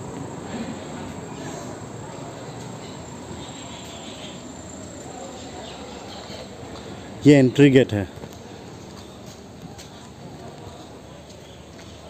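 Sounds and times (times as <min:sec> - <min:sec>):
insects chirring: 0:00.0 - 0:07.2
outdoor background hiss: 0:00.0 - 0:12.0.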